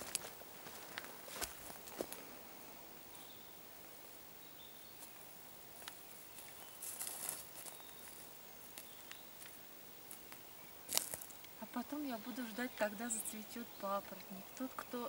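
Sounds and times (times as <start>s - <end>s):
crunch underfoot: 0.0s - 2.4s, 5.0s - 11.6s
footsteps on dry forest floor: 0.0s - 2.4s, 4.9s - 11.5s.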